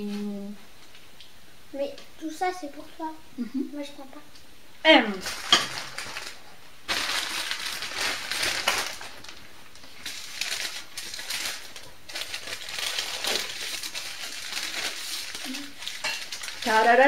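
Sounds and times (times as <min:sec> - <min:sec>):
paper bag rustling: 0:05.1 - 0:17.0.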